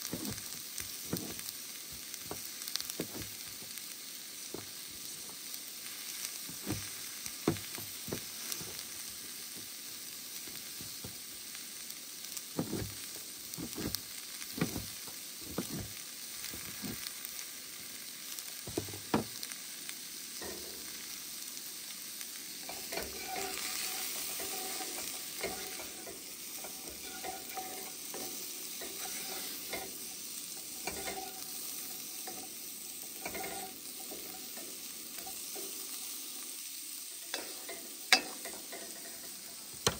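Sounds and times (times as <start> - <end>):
vegetables sizzling in skillet: 0.0 - 39.9
wooden spoon scraping pan: 12.6 - 13.0, 13.6 - 14.0, 14.6 - 14.9, 15.5 - 15.9, 22.7 - 29.9, 30.8 - 31.4, 33.2 - 34.4.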